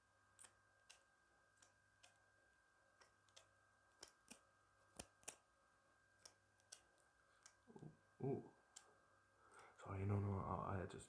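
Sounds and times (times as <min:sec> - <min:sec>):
scissors snipping: 0:00.4 - 0:02.2, 0:02.9 - 0:05.5, 0:06.2 - 0:07.7.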